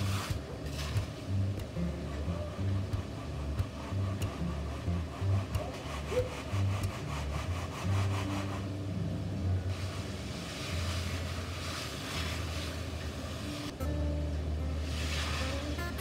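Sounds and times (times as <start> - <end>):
screed bar scraping wet concrete: 0.0 - 8.7.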